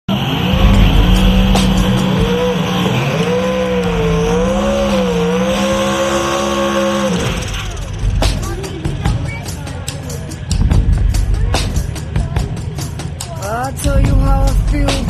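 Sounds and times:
engine revving high: 0:00.1 - 0:09.3
tyres squealing: 0:00.1 - 0:13.8.

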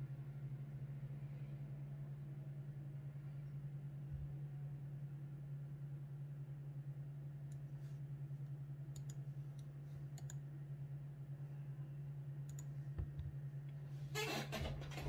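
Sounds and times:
steady low hum: 0:00.0 - 0:15.0
light clicks: 0:08.4 - 0:10.4.

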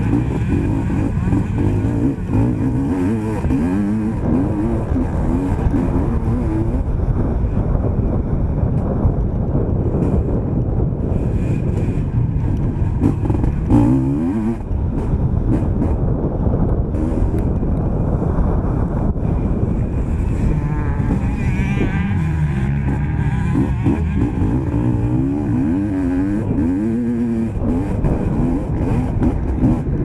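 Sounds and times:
motocross bike engine revving: 0:00.0 - 0:07.4, 0:11.1 - 0:16.1, 0:19.4 - 0:30.0.

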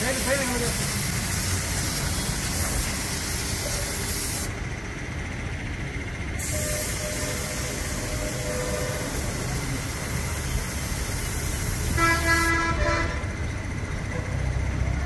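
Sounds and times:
spray gun hissing: 0:00.0 - 0:04.6, 0:06.4 - 0:12.7
low machinery rumble: 0:00.1 - 0:15.0.

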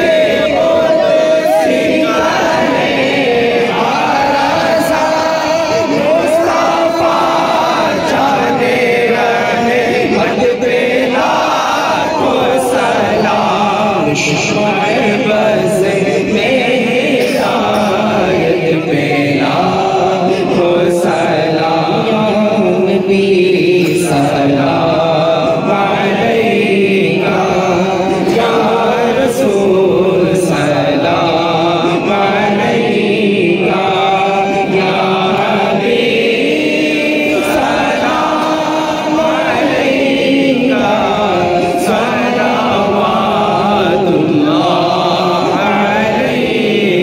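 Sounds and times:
man singing devotional chant: 0:00.0 - 0:47.0.

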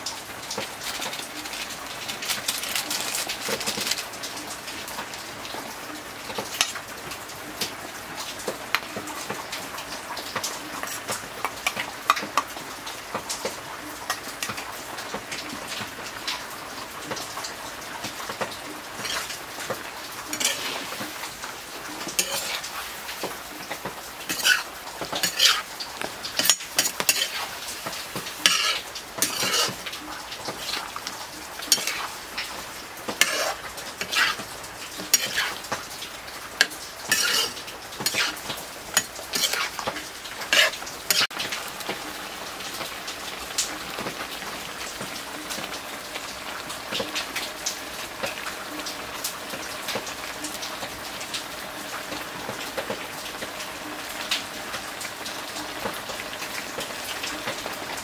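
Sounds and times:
meat sizzling in a wok: 0:00.0 - 0:05.6, 0:06.2 - 0:58.0
metal spatula scraping pan: 0:19.0 - 0:21.2, 0:22.1 - 0:23.4, 0:24.2 - 0:25.7, 0:26.4 - 0:29.9, 0:30.5 - 0:35.8, 0:36.6 - 0:39.9, 0:40.5 - 0:41.3.

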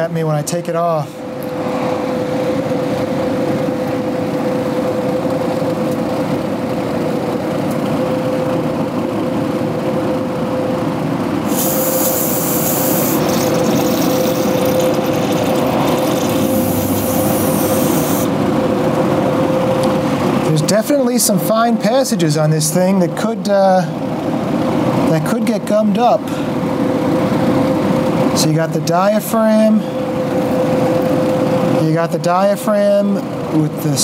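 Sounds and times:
electric fan humming: 0:01.2 - 0:25.8
aerosol can hissing: 0:11.5 - 0:18.3.

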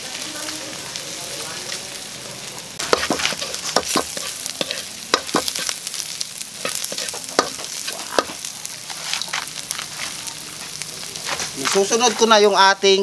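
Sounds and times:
oil sizzling: 0:00.0 - 0:13.0
metal spatula scraping wok: 0:02.8 - 0:06.0, 0:06.6 - 0:10.2.

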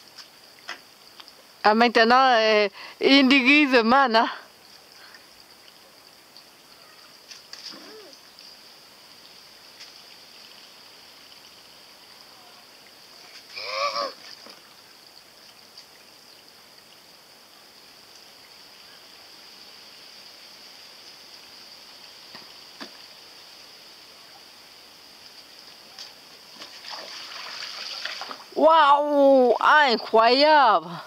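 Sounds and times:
faint high hiss: 0:00.0 - 0:31.0
high-pitched vocal cry: 0:07.7 - 0:08.2, 0:13.6 - 0:14.2.

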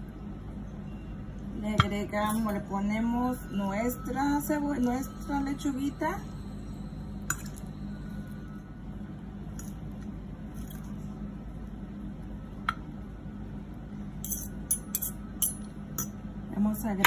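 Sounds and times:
low hum: 0:00.0 - 0:17.0
forks clinking on plate: 0:14.2 - 0:16.1.

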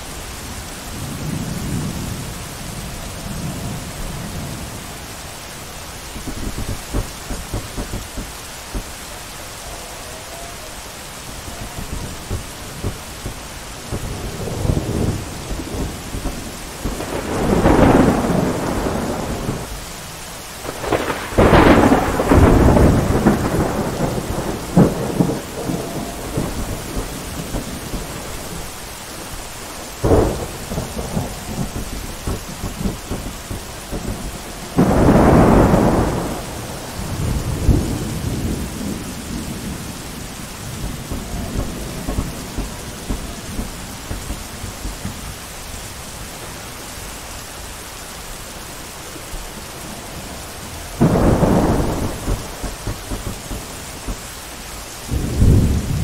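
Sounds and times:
thunder rumbling: 0:00.0 - 0:47.9, 0:48.6 - 0:56.0
heavy rain: 0:00.0 - 0:56.0
sharp thunder crack: 0:06.2 - 0:08.9, 0:11.5 - 0:19.8, 0:20.6 - 0:28.8, 0:30.0 - 0:45.5, 0:50.0 - 0:54.4, 0:55.0 - 0:56.0.

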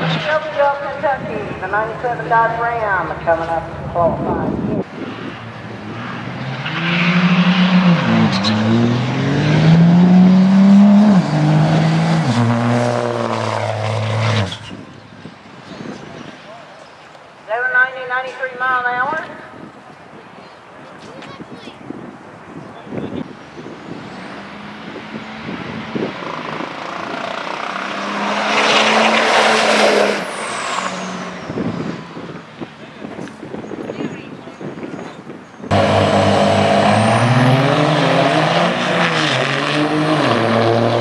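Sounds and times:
diesel pickup engine accelerating: 0:04.2 - 0:15.1, 0:23.6 - 0:33.0, 0:35.6 - 0:41.0.

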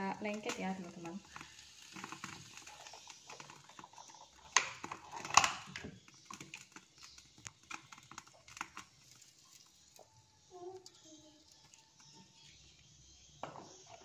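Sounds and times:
oil crackling and popping: 0:00.0 - 0:14.0.

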